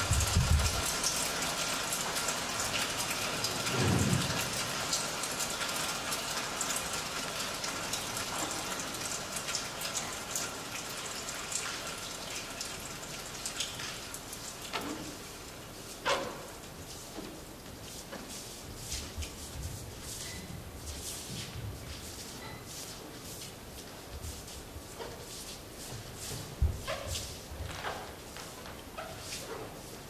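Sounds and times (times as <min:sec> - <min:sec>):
rain hissing: 0:00.0 - 0:30.0
thunder rumble: 0:03.7 - 0:04.8.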